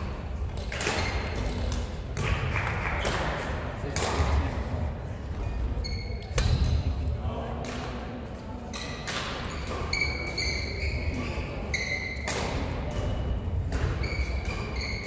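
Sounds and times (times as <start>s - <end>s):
badminton racket hitting shuttlecock: 0.4s - 4.5s, 6.2s - 6.9s, 8.7s - 11.2s, 11.8s - 15.0s
sports shoes squeaking on floor: 5.4s - 6.4s, 8.8s - 12.3s, 13.0s - 15.0s.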